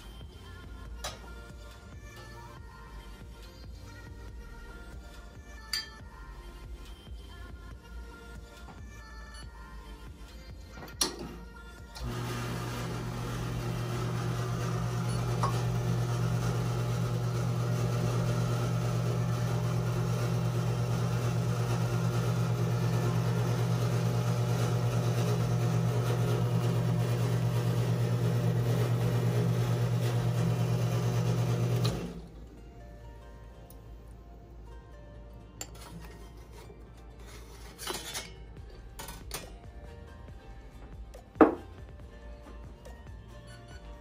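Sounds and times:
espresso machine pump humming: 12.0s - 32.3s.

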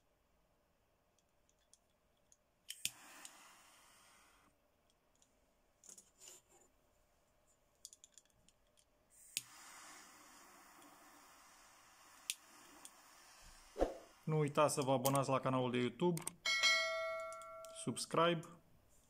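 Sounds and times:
torch lighter flame hissing: 2.7s - 4.5s, 9.1s - 14.4s.

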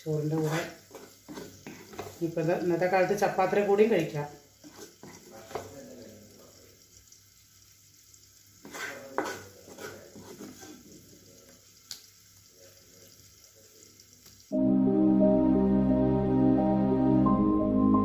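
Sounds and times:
spatula scraping a pan: 0.2s - 2.4s, 4.6s - 5.8s, 8.6s - 11.0s.

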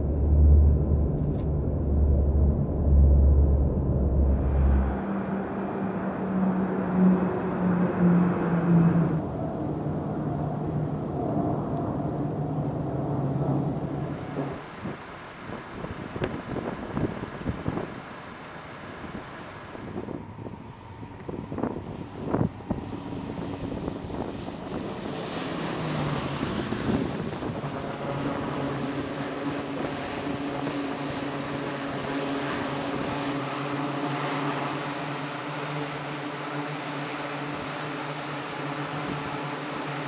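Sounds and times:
propeller drone: 0.0s - 40.0s
wind hiss: 9.1s - 40.0s.

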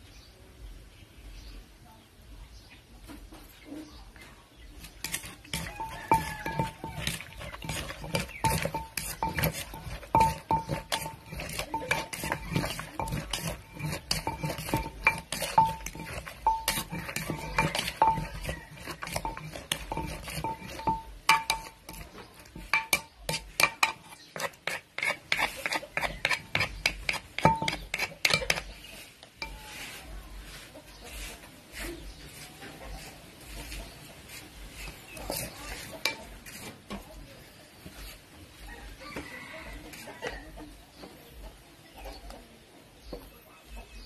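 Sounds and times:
pestle and spoon scraping mortar: 4.6s - 41.2s
spoon turning mix: 4.7s - 32.4s, 33.6s - 37.0s
pestle pounding in mortar: 4.8s - 28.8s, 35.2s - 36.4s.

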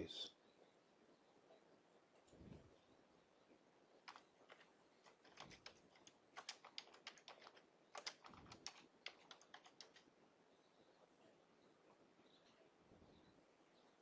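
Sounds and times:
typing on computer keyboard: 4.0s - 10.1s.

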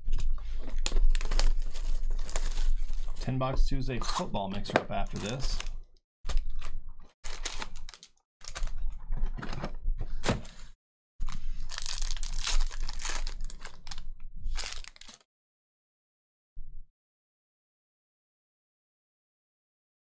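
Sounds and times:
foil wrappers crinkling and tearing: 0.7s - 3.2s, 5.1s - 5.7s, 6.3s - 8.8s, 11.2s - 15.2s.

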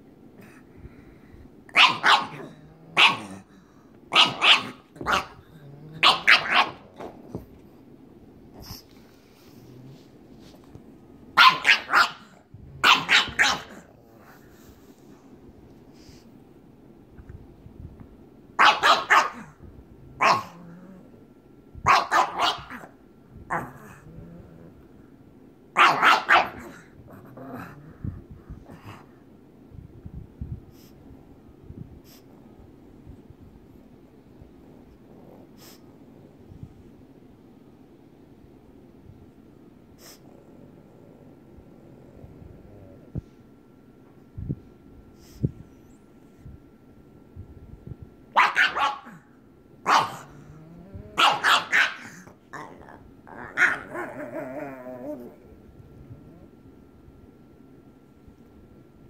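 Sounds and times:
dog barking in play: 1.7s - 3.5s, 4.1s - 7.0s, 11.3s - 13.9s, 18.6s - 19.6s, 20.2s - 20.6s, 21.8s - 23.8s, 25.7s - 26.9s, 48.3s - 50.4s, 51.0s - 52.6s, 53.4s - 54.1s
dog growling: 2.0s - 7.3s, 19.3s - 21.4s, 22.3s - 25.1s, 25.8s - 29.2s, 34.5s - 36.4s, 40.0s - 43.4s, 50.0s - 56.7s.

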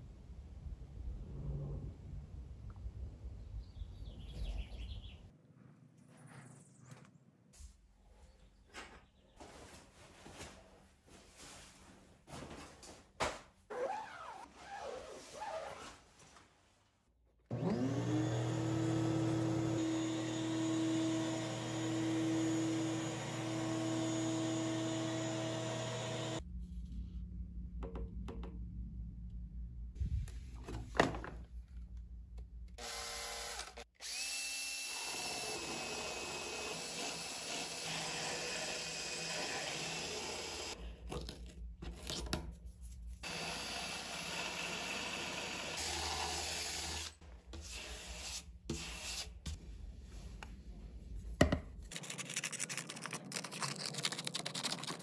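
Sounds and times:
power sander grinding resin: 17.5s - 26.4s, 32.8s - 40.8s, 43.2s - 48.1s
shop vacuum running: 17.5s - 26.4s.

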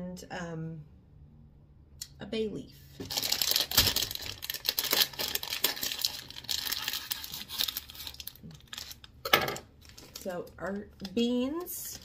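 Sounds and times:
plastic packaging crinkling: 3.0s - 12.0s.

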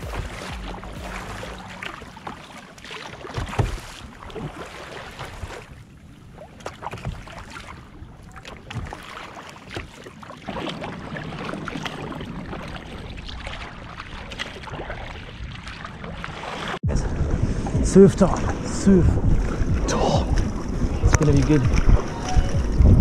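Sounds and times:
water lapping against kayak hull: 0.0s - 23.0s
wind rumbling on microphone: 10.5s - 23.0s.

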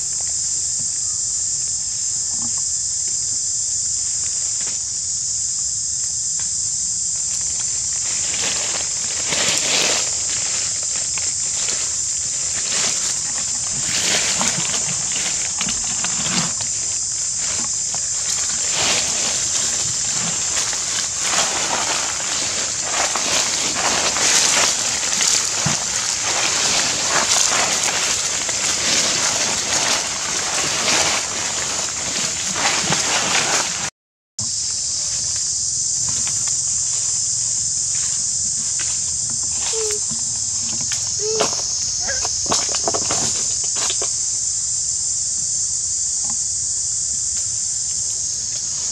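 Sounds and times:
high-pitched insect drone: 0.0s - 48.9s
rustling of dry leaf litter: 0.0s - 48.9s.

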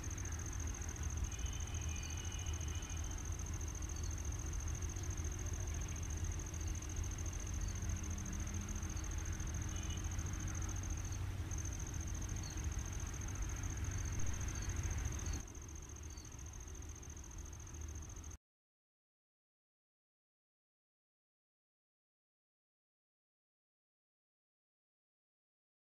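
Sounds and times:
high-pitched insect trill: 0.0s - 18.4s.

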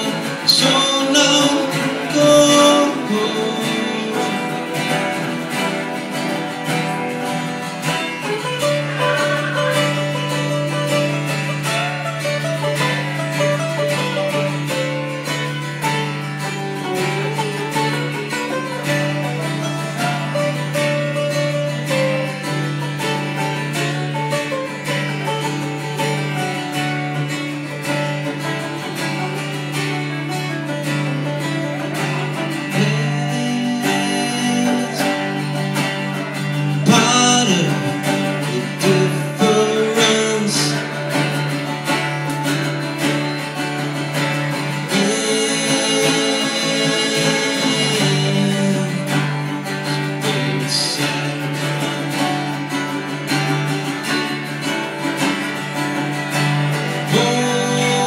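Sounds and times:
man singing: 0.0s - 10.4s, 31.6s - 41.4s, 44.3s - 51.8s, 56.7s - 58.0s
acoustic guitar strumming: 0.0s - 58.0s
second guitar: 0.0s - 58.0s.

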